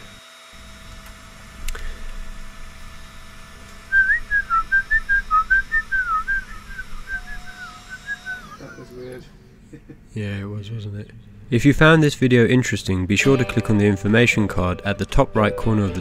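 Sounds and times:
faint steady hum: 0.0 - 15.8
person whistling a tune: 3.9 - 8.8.

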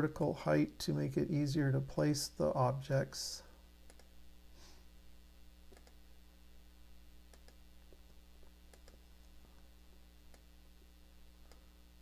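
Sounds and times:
low steady hum: 0.0 - 12.0
computer mouse clicks: 3.9 - 4.1, 5.7 - 6.0, 7.3 - 7.6, 8.7 - 9.0.

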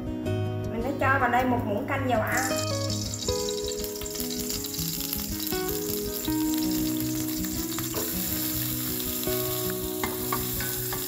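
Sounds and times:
background music: 0.0 - 11.0
oil sizzling in a pot: 2.3 - 11.0.

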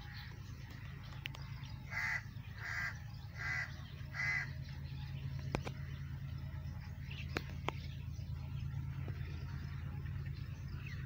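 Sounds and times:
low hum: 0.0 - 11.0
crow cawing: 1.9 - 4.6.

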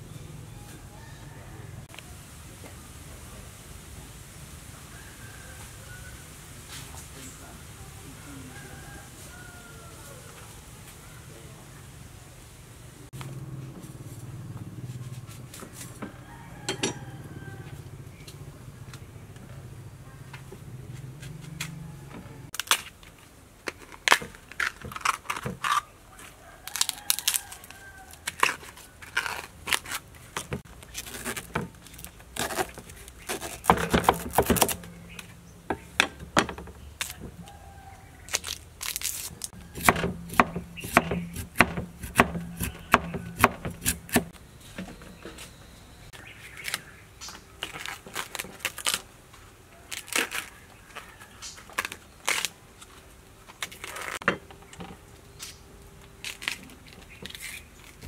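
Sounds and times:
husk leaves tearing: 21.0 - 35.4, 36.8 - 44.4, 46.4 - 54.2, 55.3 - 58.0
knife cutting bamboo: 26.6 - 37.6, 38.3 - 44.4.

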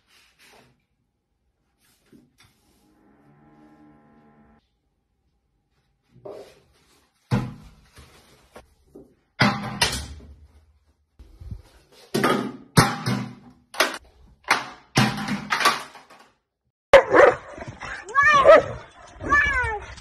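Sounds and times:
objects clattering on tiled floor: 11.8 - 16.5.

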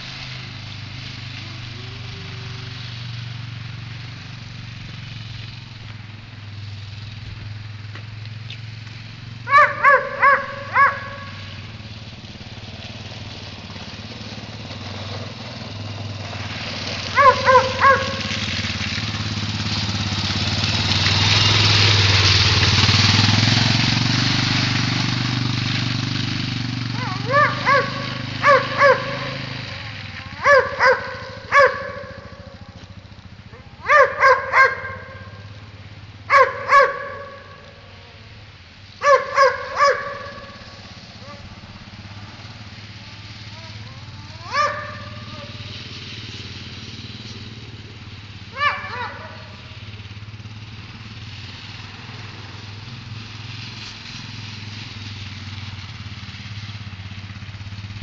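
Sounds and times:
quad engine droning: 0.0 - 58.0
dog barking: 9.5 - 11.6, 17.1 - 18.4, 27.0 - 32.5, 33.5 - 35.4, 36.3 - 37.8, 39.0 - 41.5, 43.6 - 45.6, 48.5 - 49.6.

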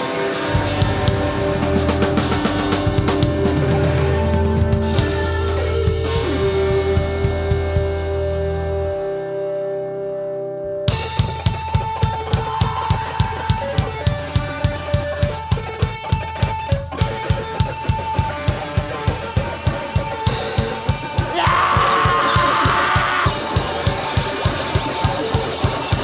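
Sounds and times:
electric guitar chord ringing: 0.0 - 11.4
live rock band playing: 0.0 - 26.0.

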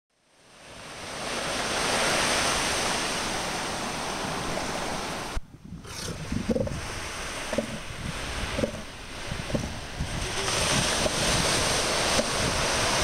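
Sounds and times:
surf washing: 0.3 - 13.0
wind on microphone: 0.6 - 13.0
elephant seal calls: 5.9 - 6.8.

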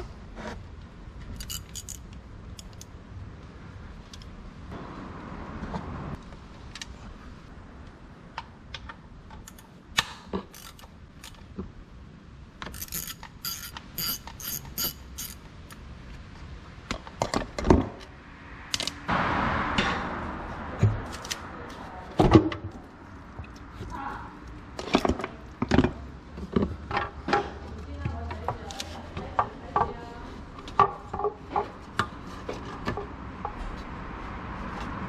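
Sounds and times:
ratchet wrench clicking: 1.4 - 2.9, 10.5 - 11.4, 12.6 - 15.8.

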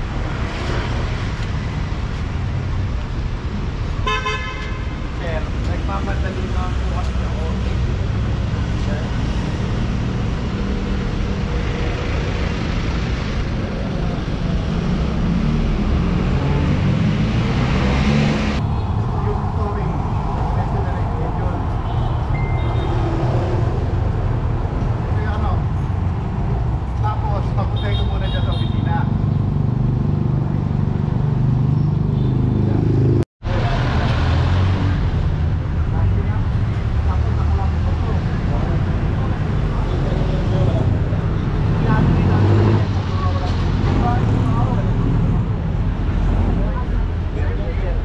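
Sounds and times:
cars driving past: 0.0 - 27.8, 28.8 - 48.0
city street traffic: 0.0 - 48.0.

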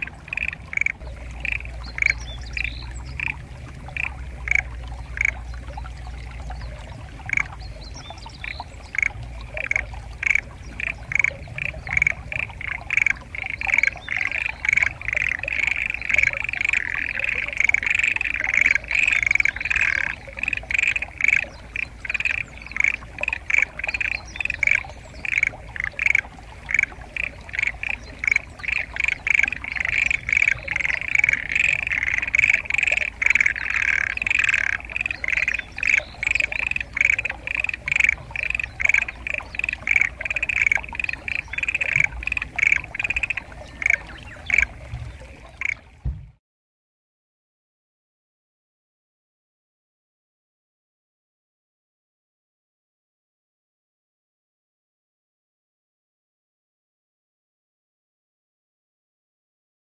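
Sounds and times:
frogs croaking in chorus: 0.0 - 6.1, 7.1 - 46.0.

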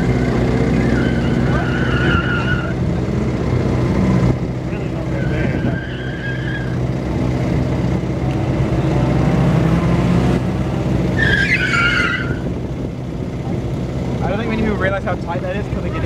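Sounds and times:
car engine running hard: 0.0 - 16.0
tyres squealing: 0.7 - 2.8, 5.0 - 6.8, 11.1 - 12.5.

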